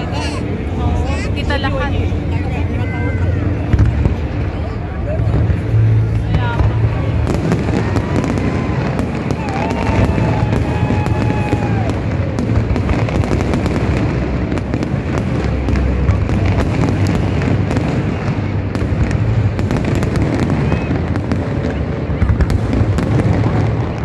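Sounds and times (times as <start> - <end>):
fireworks crackling: 0.0 - 24.0
fireworks booming: 2.2 - 24.0.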